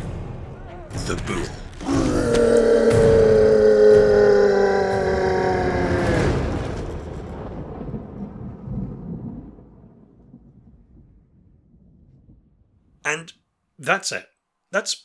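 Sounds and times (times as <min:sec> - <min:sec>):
creature's deep roar: 0:01.8 - 0:06.9
low rumble: 0:02.0 - 0:13.0.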